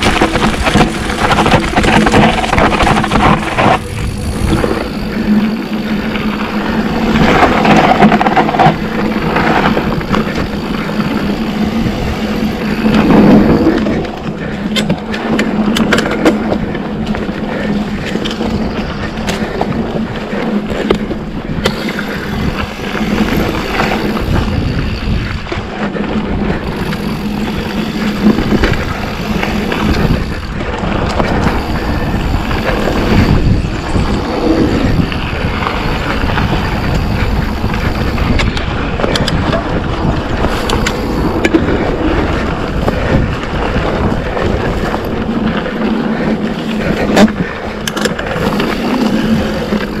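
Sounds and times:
bike knocking over bumps: 0.0 - 11.6
bike rattling: 0.0 - 50.0
bike tyres rolling over dirt: 0.0 - 50.0.

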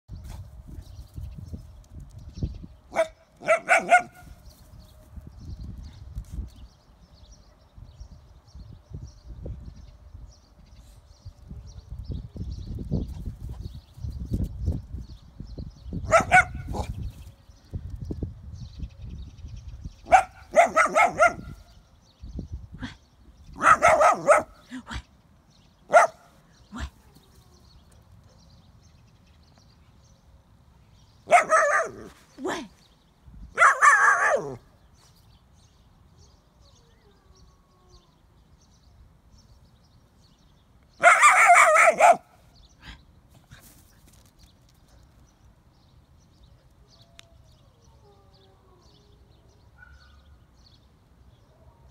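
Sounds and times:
puppy barking: 2.9 - 4.2, 16.1 - 16.9, 20.1 - 21.5, 23.6 - 24.6, 25.9 - 26.3, 31.3 - 32.1, 33.6 - 34.6, 41.0 - 42.4, 49.8 - 50.2.

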